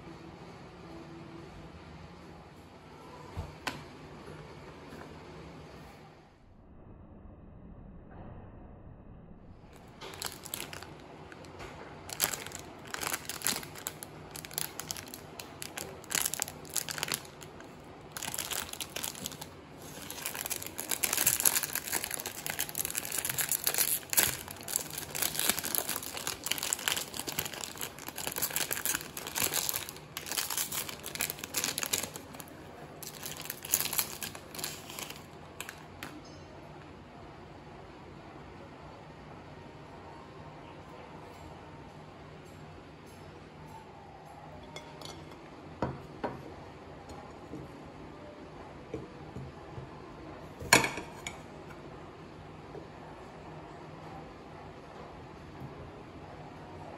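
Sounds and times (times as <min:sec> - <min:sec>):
plastic wrapper crinkling and tearing: 0:09.7 - 0:36.1.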